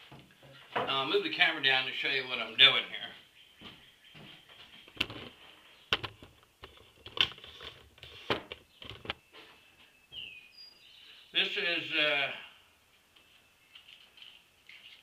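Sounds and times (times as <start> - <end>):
camera handling knocks and rustles: 4.9 - 9.2.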